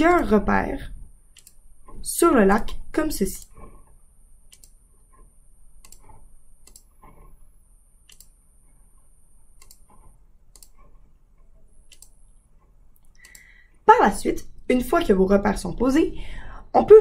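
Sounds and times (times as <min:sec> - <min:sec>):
computer mouse clicking: 0:01.3 - 0:02.0, 0:02.6 - 0:07.4, 0:08.0 - 0:13.6.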